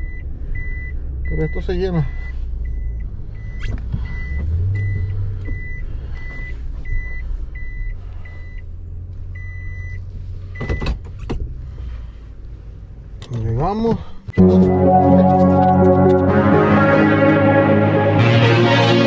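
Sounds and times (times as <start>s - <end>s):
engine and road rumble: 0.0s - 14.4s
reversing beeper beeps: 14.4s - 16.2s.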